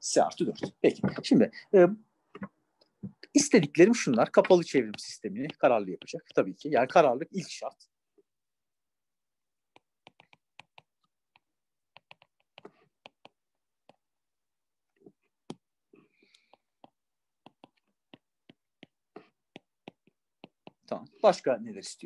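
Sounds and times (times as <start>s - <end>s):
stylus tapping on tablet screen: 4.0s - 6.5s, 9.7s - 14.1s, 15.0s - 21.0s.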